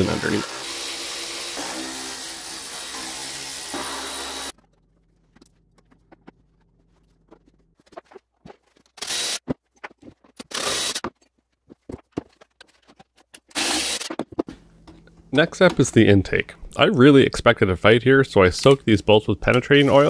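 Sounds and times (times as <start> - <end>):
harsh tool and metal noise: 0.0 - 4.6, 9.0 - 11.2, 12.9 - 14.5, 19.5 - 20.0
cordless drill whirring: 13.5 - 14.1.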